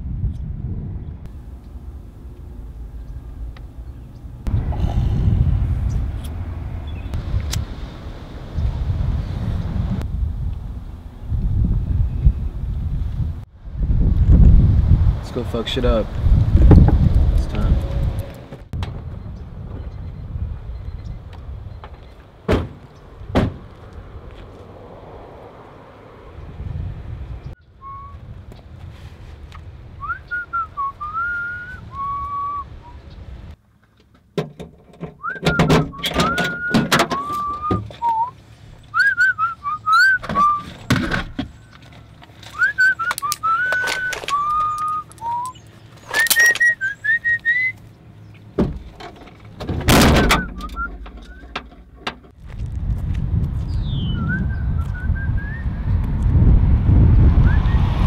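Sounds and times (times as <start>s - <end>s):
loud sharp thumps: 22.5s - 23.7s, 49.6s - 52.4s
person whistling a tune: 27.8s - 28.2s, 30.0s - 33.0s, 35.2s - 38.3s, 39.0s - 40.7s, 42.6s - 45.6s, 46.2s - 47.8s, 50.2s - 51.5s.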